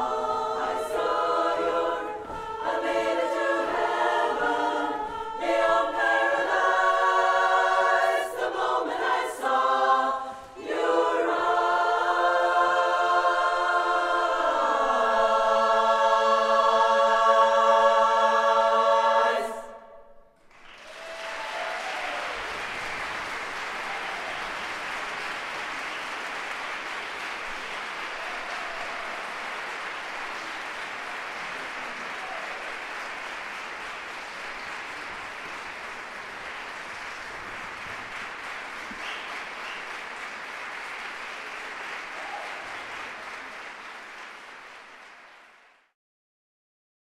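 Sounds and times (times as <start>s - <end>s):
audience applause: 20.4s - 45.9s.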